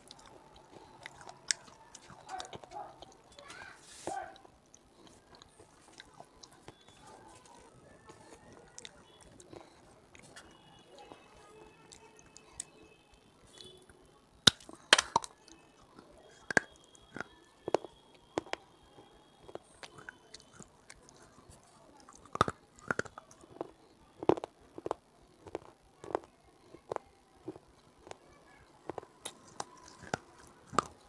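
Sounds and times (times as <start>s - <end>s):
dry clay crunched between teeth: 14.5s - 18.6s, 19.4s - 28.2s, 28.8s - 31.0s.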